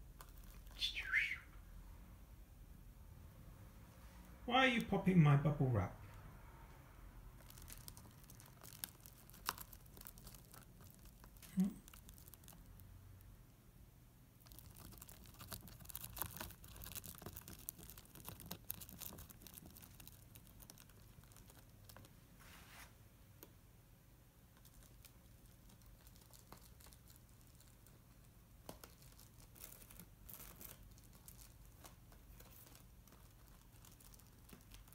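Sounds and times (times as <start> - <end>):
bird pecking bubble wrap: 0.0 - 1.2, 7.2 - 13.3, 14.4 - 22.2, 24.4 - 34.9.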